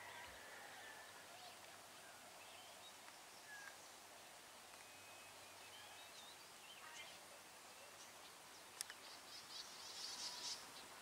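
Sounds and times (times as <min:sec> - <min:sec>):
bird chirps: 0:04.7 - 0:10.9.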